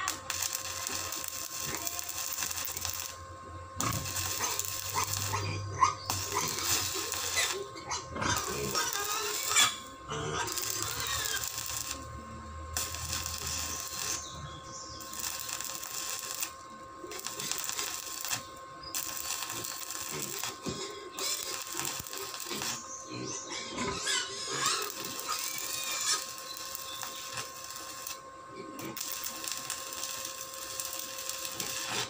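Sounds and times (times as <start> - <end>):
welding arc crackling: 0.0 - 32.0.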